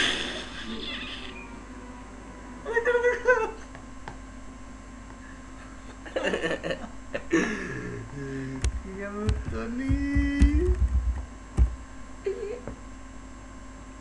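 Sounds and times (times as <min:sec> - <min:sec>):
boy laughing and giggling: 0:02.8 - 0:03.7, 0:05.9 - 0:07.4
low thumps: 0:08.6 - 0:11.8.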